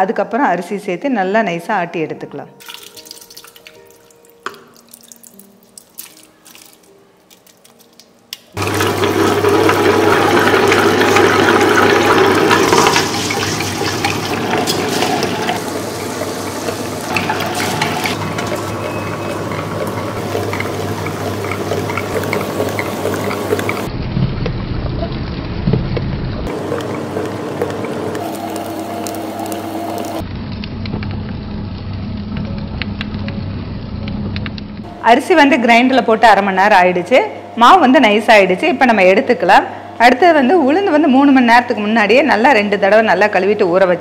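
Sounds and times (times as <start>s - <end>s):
water trickling: 2.6s - 9.4s
wet sloshing grind: 2.6s - 30.3s
wet grinder motor hum: 8.6s - 25.3s, 26.4s - 32.0s.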